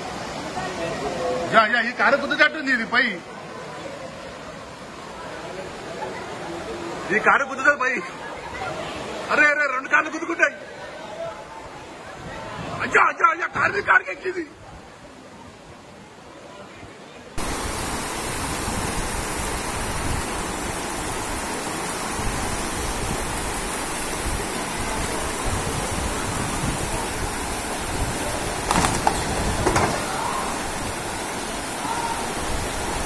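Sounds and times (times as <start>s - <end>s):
floodwater rushing: 17.4s - 33.0s.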